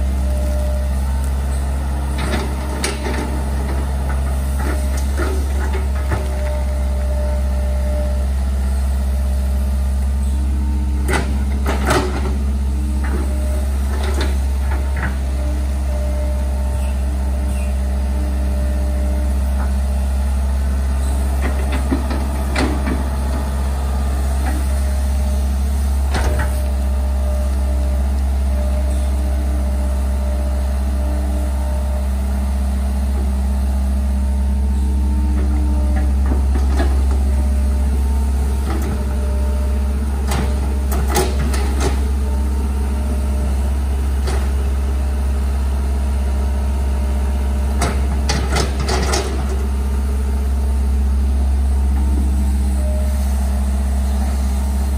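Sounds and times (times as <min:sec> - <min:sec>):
excavator diesel engine running: 0:00.0 - 0:54.9.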